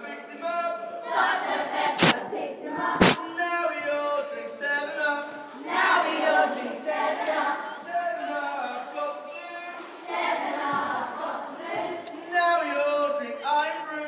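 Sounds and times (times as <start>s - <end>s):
children singing together: 1.0s - 3.2s, 5.6s - 8.0s, 9.8s - 12.3s
loud sharp cracks: 2.0s - 2.2s, 3.0s - 3.2s.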